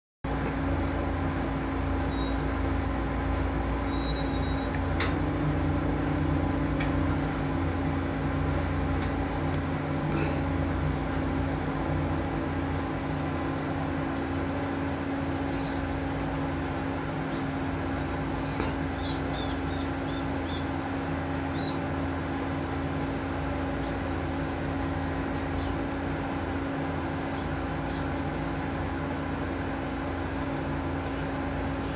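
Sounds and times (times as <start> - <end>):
steady low hum: 0.2 - 31.9
bird begging calls: 18.3 - 21.9, 25.3 - 25.9
bird chirps: 18.4 - 21.9.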